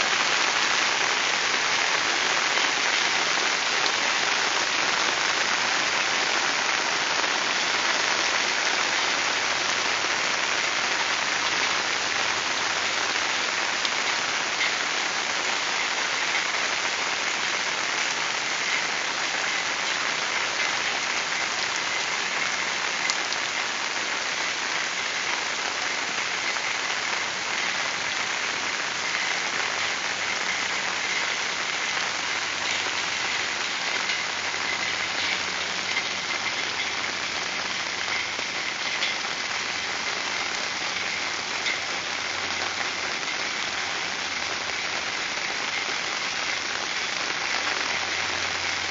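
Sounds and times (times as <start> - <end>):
heavy rain falling on water: 0.0 - 48.9.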